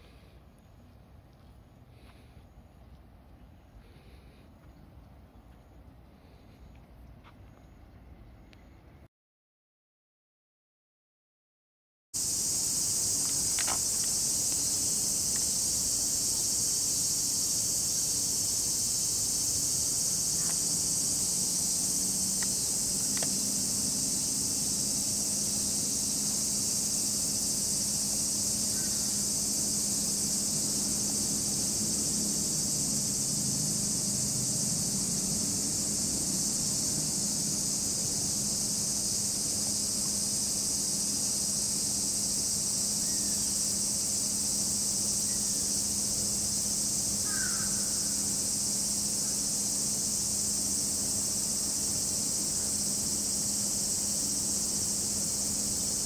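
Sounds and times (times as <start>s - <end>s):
insects chirring: 12.2s - 56.0s.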